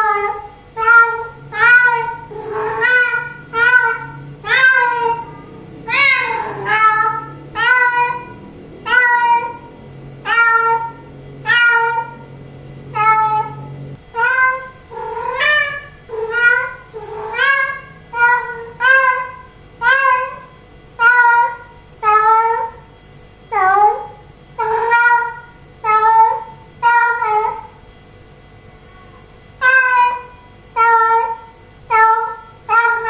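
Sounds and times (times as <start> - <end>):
cat meowing loudly: 0.0 - 12.2, 12.9 - 22.8, 29.6 - 33.0.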